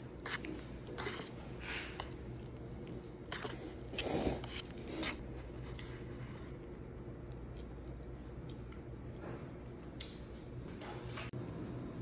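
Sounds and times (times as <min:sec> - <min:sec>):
chopsticks scraping noodles in cup: 0:00.2 - 0:02.2, 0:03.3 - 0:05.2.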